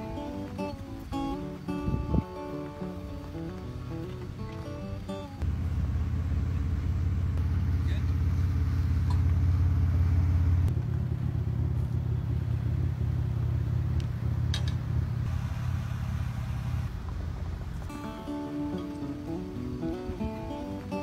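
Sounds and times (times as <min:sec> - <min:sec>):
acoustic guitar strumming: 0:00.0 - 0:05.4, 0:17.9 - 0:21.0
vehicle engine rumbling: 0:00.0 - 0:21.0.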